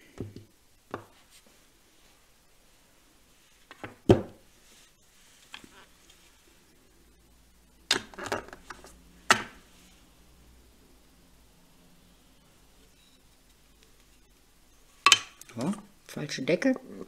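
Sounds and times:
plastic items clattering on a table: 7.9 - 9.6.

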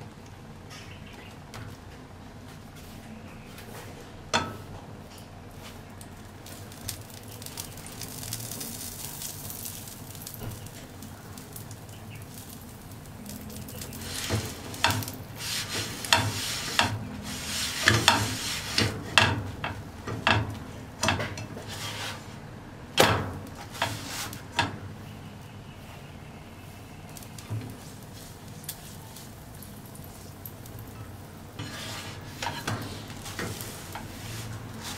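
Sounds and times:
butter sizzling in a pan: 6.3 - 22.2
spatula scraping a pan: 13.5 - 22.4, 23.6 - 24.7, 31.6 - 34.9.

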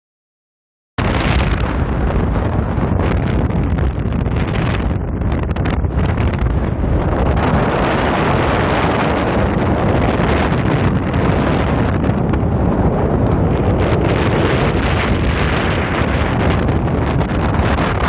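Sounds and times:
wind buffeting microphone: 1.0 - 18.0.

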